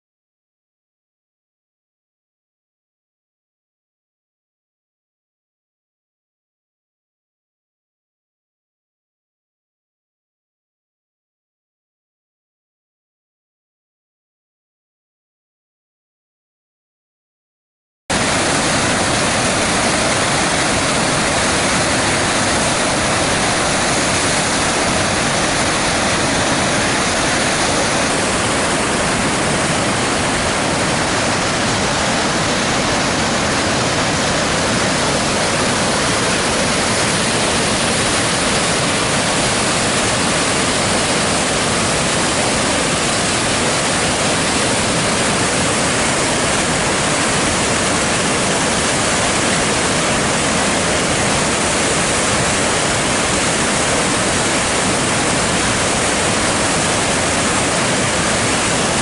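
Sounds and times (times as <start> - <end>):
whitewater rushing: 18.1 - 59.0.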